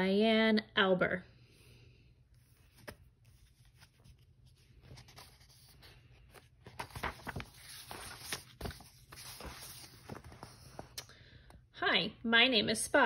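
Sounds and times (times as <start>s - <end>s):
paper rustling and crinkling: 2.4s - 11.0s.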